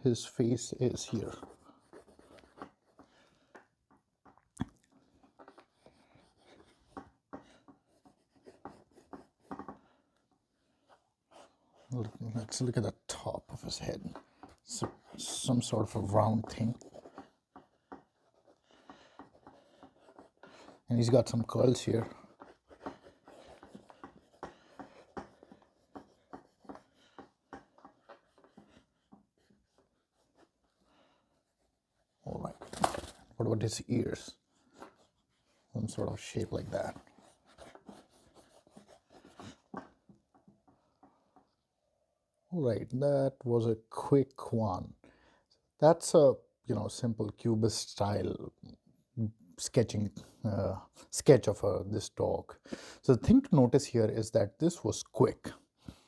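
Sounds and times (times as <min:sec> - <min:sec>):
drawing stick scratching on paper: 0:00.2 - 0:03.6, 0:05.0 - 0:41.6.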